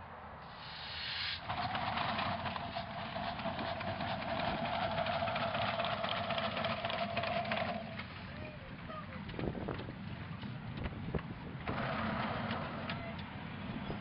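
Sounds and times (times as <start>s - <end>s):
steam locomotive chuffing: 0.5s - 8.3s.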